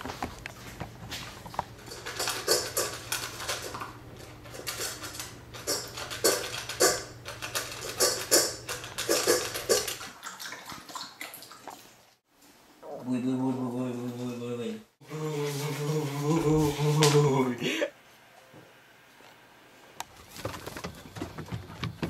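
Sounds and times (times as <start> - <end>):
kibble clinking in metal bowl: 1.8 - 10.0.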